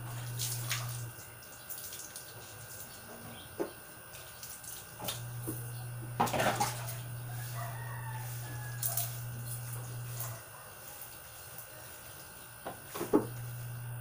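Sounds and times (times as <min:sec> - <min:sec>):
low steady hum: 0:00.0 - 0:10.5, 0:13.0 - 0:14.0
water splashing: 0:00.1 - 0:01.1
rooster crowing: 0:06.6 - 0:10.5.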